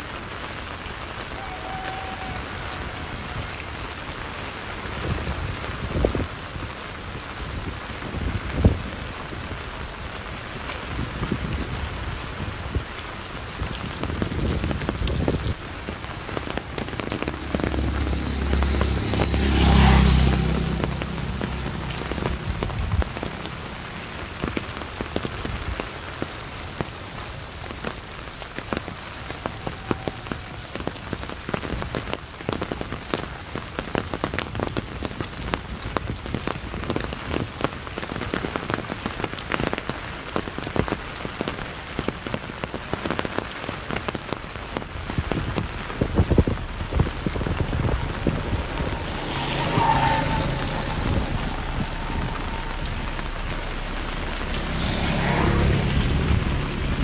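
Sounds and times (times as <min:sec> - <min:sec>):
steady rain with drop hits: 0:00.0 - 0:57.0
loud rush with deep rumble: 0:13.5 - 0:26.0, 0:44.3 - 0:57.0.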